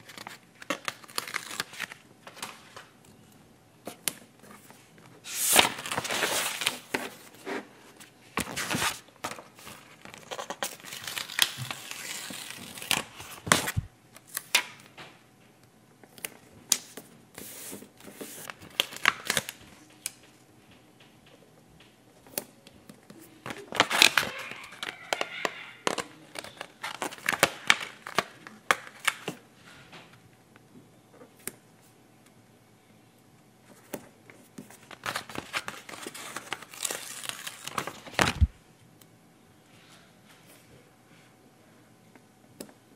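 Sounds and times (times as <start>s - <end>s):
stickers peeling and crinkling: 0.0s - 2.9s, 8.4s - 14.9s, 23.2s - 29.4s, 34.6s - 38.5s.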